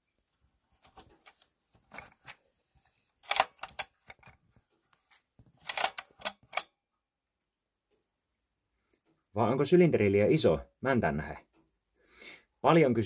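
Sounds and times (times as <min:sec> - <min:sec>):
handling clicks: 0:03.2 - 0:04.3.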